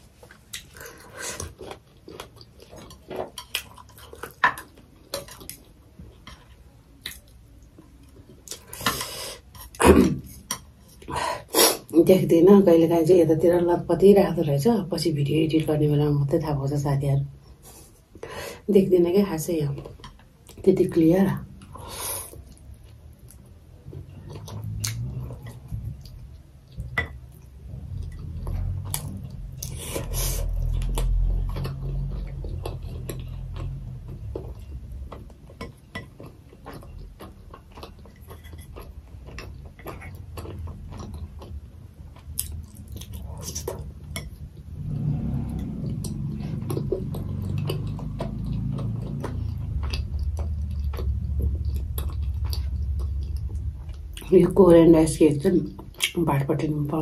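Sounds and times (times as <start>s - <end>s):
chewing and slurping noodles: 21.8s - 54.2s.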